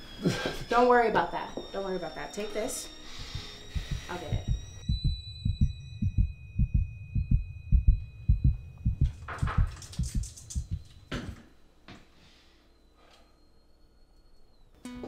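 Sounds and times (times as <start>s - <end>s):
high ringing tone: 0.0s - 15.0s
heartbeat thumps: 3.2s - 11.4s.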